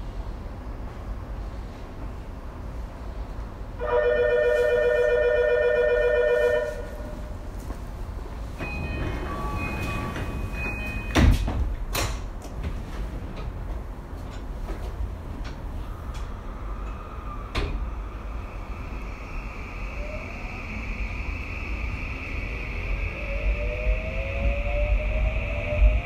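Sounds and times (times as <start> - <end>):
loud steady tone: 3.8 - 7.5, 8.6 - 11.6
sliding doors thumping open: 8.6 - 15.8.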